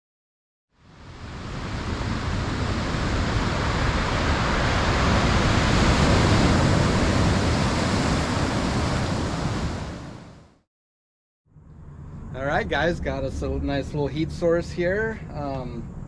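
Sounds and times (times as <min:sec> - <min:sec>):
rushing surf: 0:00.8 - 0:10.6.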